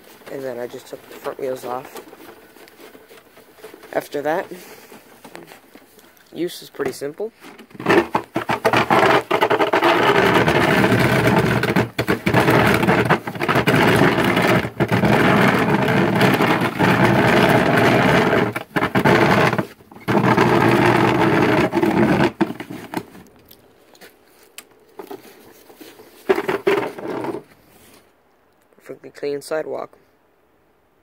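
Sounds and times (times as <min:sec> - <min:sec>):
lawnmower engine running: 0:00.0 - 0:05.7, 0:07.4 - 0:23.2, 0:25.0 - 0:27.6.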